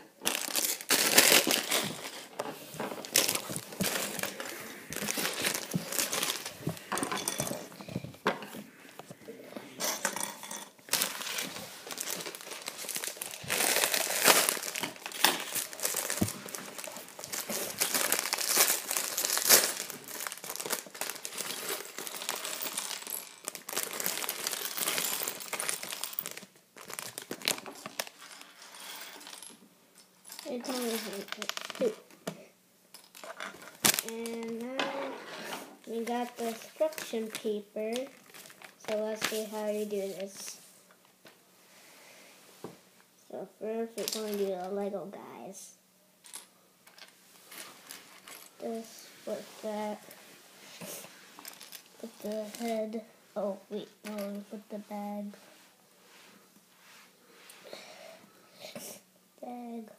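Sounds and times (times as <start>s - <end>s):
plastic bag crinkling: 0.2s - 2.4s, 3.0s - 8.0s, 10.8s - 29.3s, 30.4s - 32.1s, 33.1s - 34.8s, 35.8s - 40.5s, 51.0s - 52.9s.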